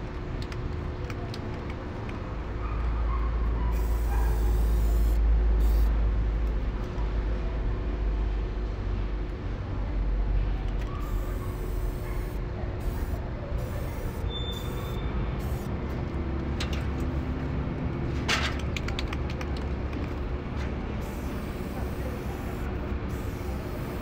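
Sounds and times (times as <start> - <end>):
street traffic rumble: 0.0 - 24.0
spray paint can hissing: 3.8 - 5.9, 11.0 - 15.7, 21.0 - 24.0.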